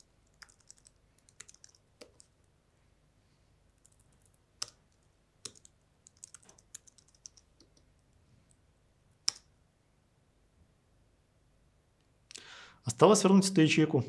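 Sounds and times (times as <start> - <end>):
typing on computer keyboard: 0.0 - 2.3, 3.8 - 7.9.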